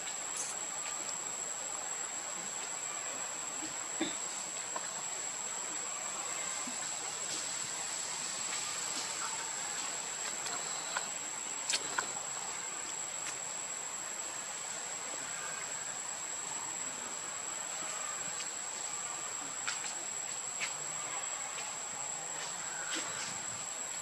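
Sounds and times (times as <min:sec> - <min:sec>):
insects droning: 0:00.0 - 0:24.0
faint clicks: 0:09.8 - 0:12.1.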